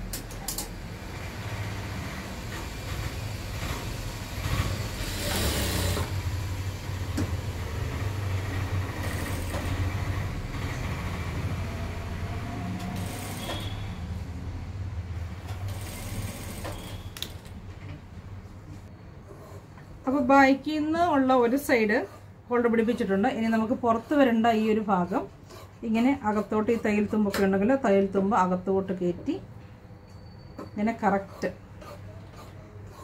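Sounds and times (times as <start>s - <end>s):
sewing machine motor humming: 1.1s - 6.2s, 7.6s - 13.9s, 15.6s - 17.2s.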